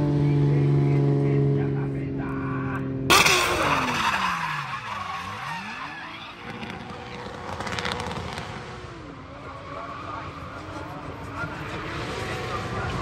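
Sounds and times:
car engine revving: 2.8s - 13.0s
tyres screeching: 3.1s - 8.6s.

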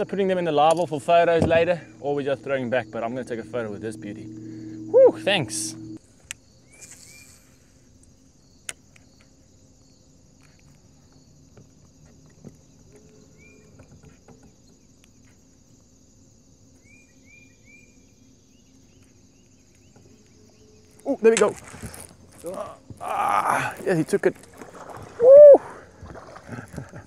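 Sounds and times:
faint low hum: 0.0s - 14.0s
insect drone: 0.0s - 27.0s
short rising bird chirps: 6.7s - 7.7s.

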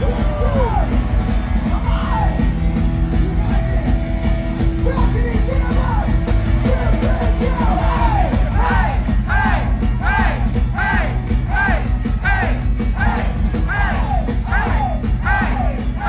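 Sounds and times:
distorted guitars: 0.0s - 16.0s
drums: 0.0s - 16.0s
yelled vocals: 5.6s - 16.0s.

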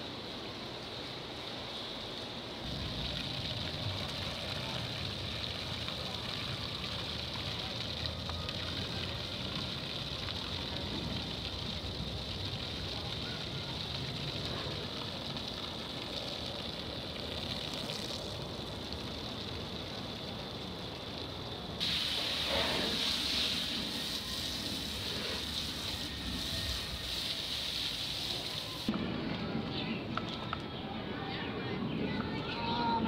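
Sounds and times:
garden hose spraying water: 2.6s - 28.9s.

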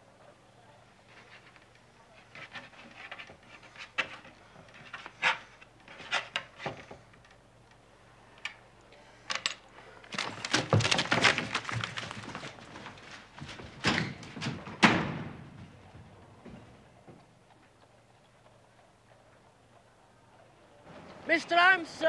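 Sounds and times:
knocks and shuffling movement: 9.4s - 18.0s
paper rustling: 10.1s - 14.6s.

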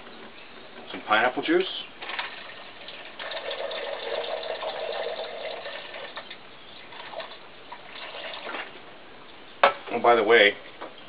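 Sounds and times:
juice pouring over ice: 2.0s - 8.7s.

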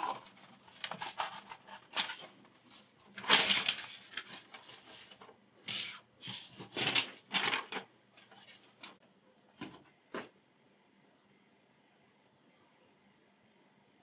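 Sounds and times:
paper rustling and sliding: 0.0s - 9.0s.

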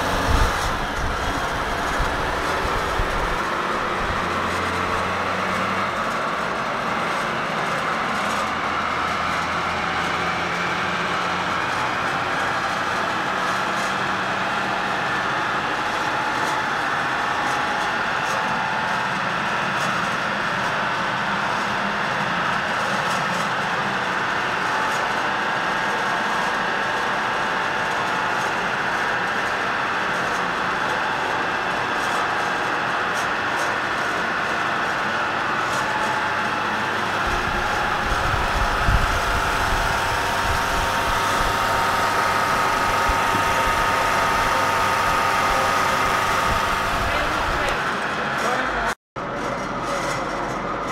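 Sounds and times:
car engine running: 0.0s - 6.8s, 35.7s - 48.9s
wheels spinning on rollers: 0.0s - 50.9s.

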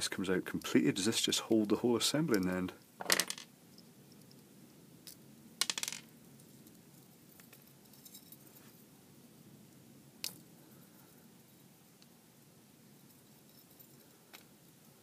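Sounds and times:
small metal clicks and clinks: 6.4s - 8.5s.

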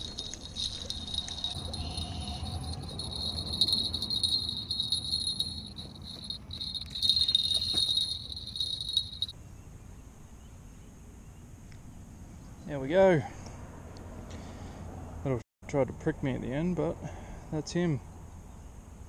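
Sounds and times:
small bell jingling: 0.0s - 9.3s.

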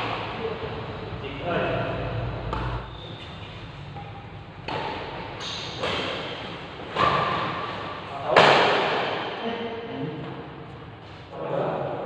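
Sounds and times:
rackets hitting shuttlecock: 2.4s - 3.4s, 4.0s - 9.4s.

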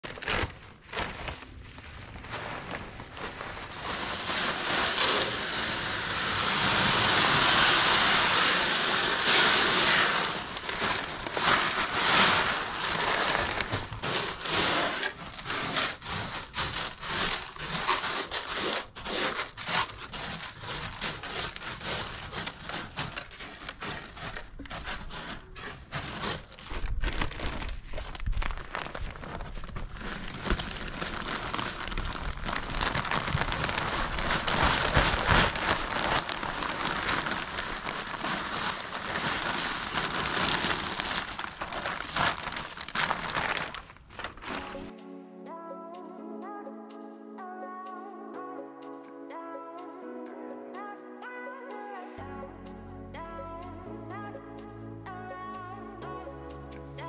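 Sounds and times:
rustling and crinkling: 0.0s - 44.9s.

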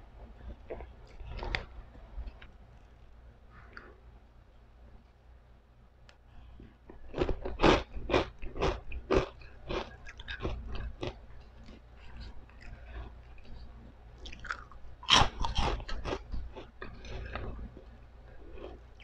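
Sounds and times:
crunchy chewing: 6.9s - 19.0s.

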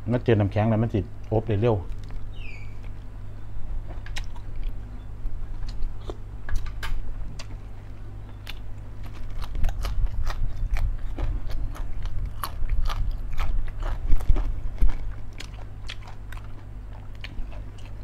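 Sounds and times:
crisp chewing crunches: 5.6s - 18.0s.

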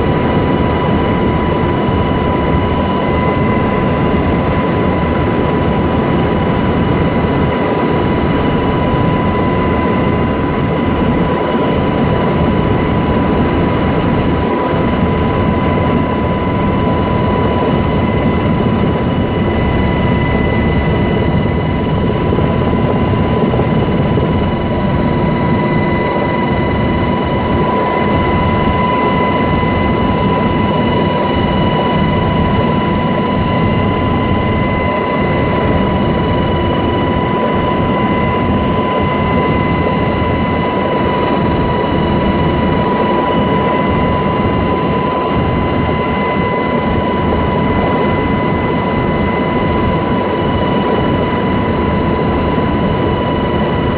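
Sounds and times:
high whine: 0.0s - 50.8s
helicopter engine and rotor: 0.0s - 53.9s.

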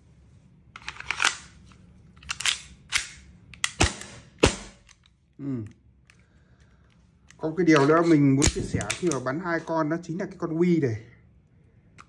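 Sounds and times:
pistol handling clicks: 2.2s - 5.2s
airsoft pistol shots: 3.7s - 4.9s.

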